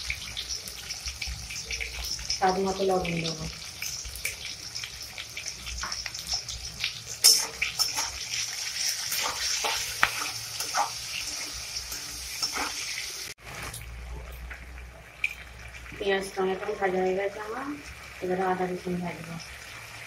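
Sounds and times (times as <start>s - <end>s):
vegetables sizzling in hot oil: 0.0s - 20.0s
metal spatula scraping a pan: 5.8s - 13.8s.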